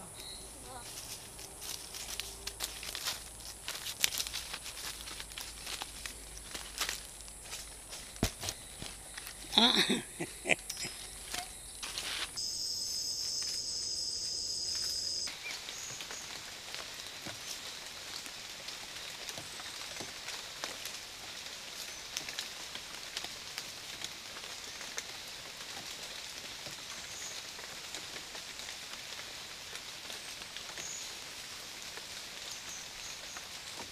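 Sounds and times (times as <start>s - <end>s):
high-pitched insect drone: 6.9s - 15.3s.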